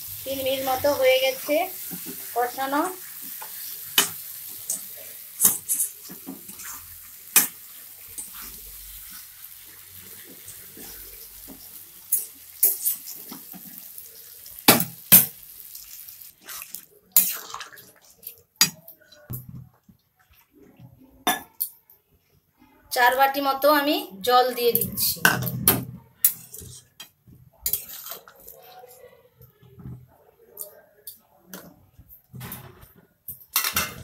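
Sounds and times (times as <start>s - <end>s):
water hissing in hot pan: 0.0s - 17.3s
food sizzling in oil: 0.0s - 18.0s.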